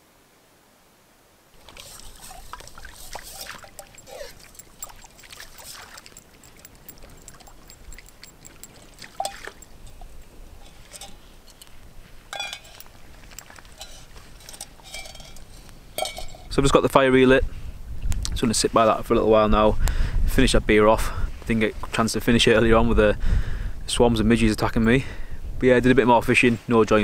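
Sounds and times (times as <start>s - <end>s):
water splashing and trickling: 1.6s - 16.4s.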